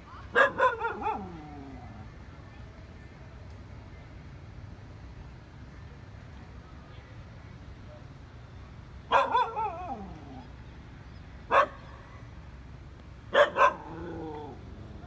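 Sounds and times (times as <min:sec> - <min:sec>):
dog barking: 0:00.3 - 0:01.4, 0:09.1 - 0:10.1, 0:11.5 - 0:12.2, 0:13.3 - 0:14.5.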